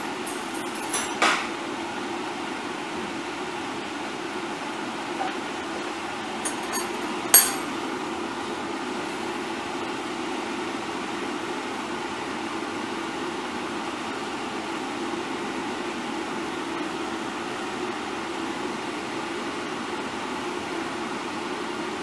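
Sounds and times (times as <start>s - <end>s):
steady background hum: 0.0s - 20.0s
crockery clinking: 0.3s - 1.4s, 6.4s - 7.7s.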